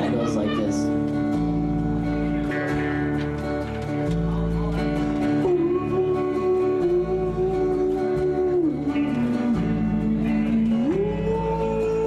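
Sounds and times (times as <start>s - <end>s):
strummed acoustic guitar: 0.0s - 12.0s
man yodeling: 5.4s - 12.0s.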